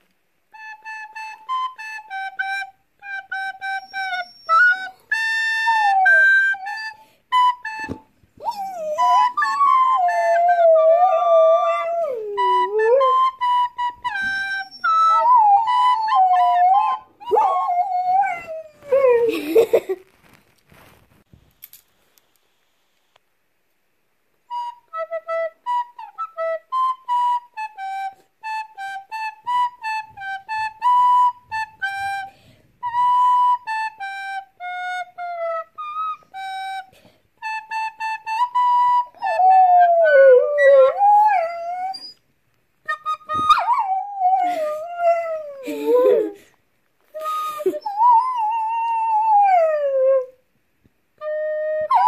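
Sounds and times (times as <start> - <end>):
recorder playing a simple tune: 0.5 - 19.2, 24.5 - 42.2, 42.8 - 46.4, 47.1 - 49.7
dog howling: 8.5 - 13.2.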